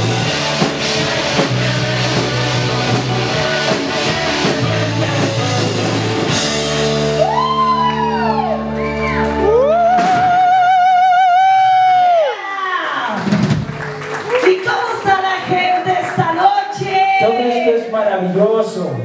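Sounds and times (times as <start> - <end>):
live rock band playing: 0.0 - 10.8, 13.1 - 17.0.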